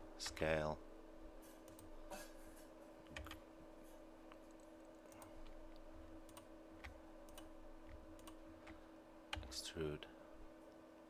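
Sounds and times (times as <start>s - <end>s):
faint steady hum: 0.0s - 11.0s
computer keys and mouse clicks: 1.6s - 1.9s, 3.0s - 3.4s, 4.4s - 9.6s.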